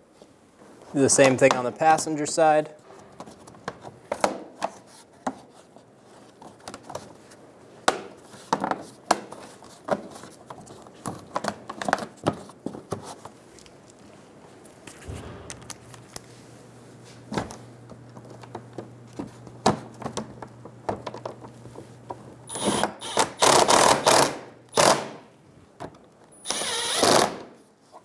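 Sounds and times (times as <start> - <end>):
impact driver bursts: 22.5 - 25.2, 26.4 - 27.5.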